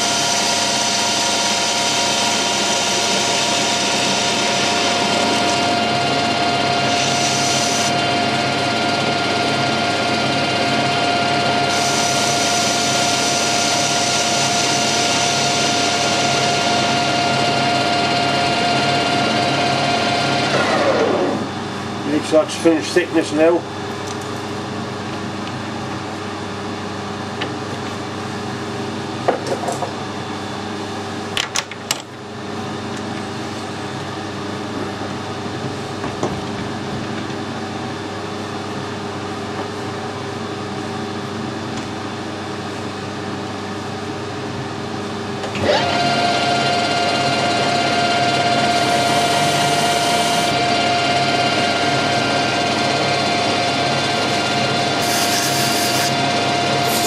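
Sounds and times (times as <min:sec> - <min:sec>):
machine hum: 0:00.0 - 0:22.4, 0:45.3 - 0:57.0
lathe spindle whine: 0:00.0 - 0:22.8, 0:45.4 - 0:57.0.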